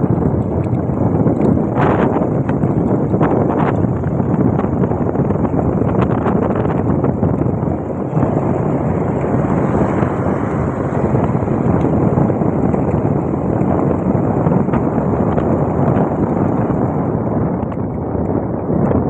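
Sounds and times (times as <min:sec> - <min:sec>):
motorbike engine running: 0:00.0 - 0:19.0
road noise: 0:00.0 - 0:19.0
wind buffeting microphone: 0:00.0 - 0:19.0.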